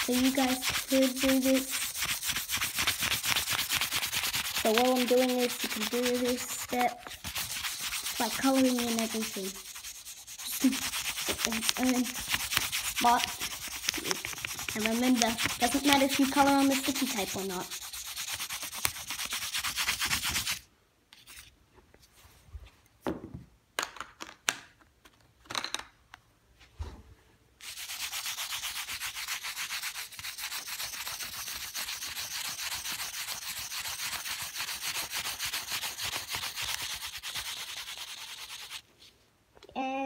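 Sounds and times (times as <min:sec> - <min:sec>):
pencil scribbling on paper: 0:00.0 - 0:20.6, 0:27.6 - 0:38.8.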